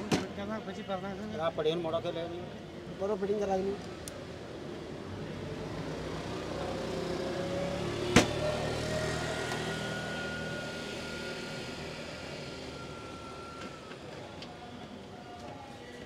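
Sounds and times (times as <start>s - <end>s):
street traffic: 0.0s - 16.0s
vehicle passing: 5.6s - 12.8s.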